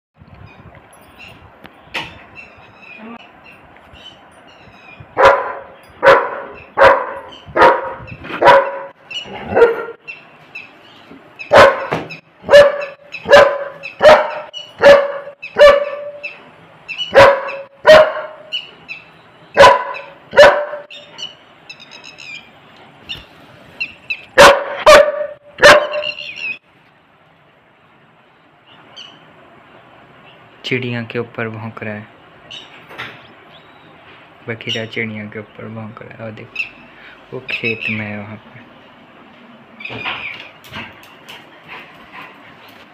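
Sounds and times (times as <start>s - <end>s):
dog barking: 5.2s - 10.0s, 11.5s - 16.2s, 17.1s - 18.5s, 19.6s - 20.9s, 24.4s - 26.2s.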